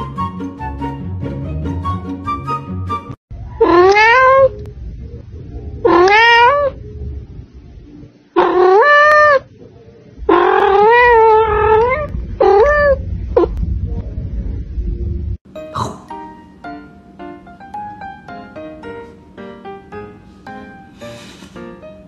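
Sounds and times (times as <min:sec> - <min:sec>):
cat meowing: 0:03.6 - 0:04.6, 0:05.8 - 0:06.8, 0:08.4 - 0:09.5, 0:10.3 - 0:13.6.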